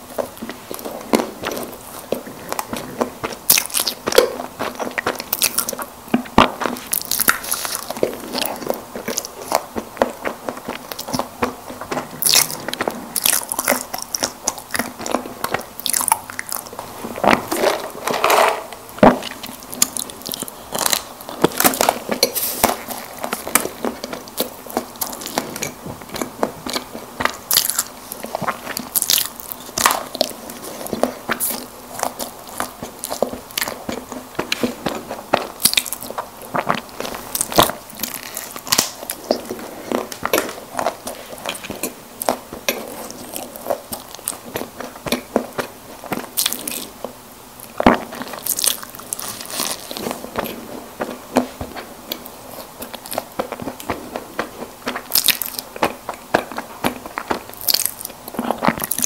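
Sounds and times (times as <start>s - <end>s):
chewing snack cakes: 0.0s - 59.0s.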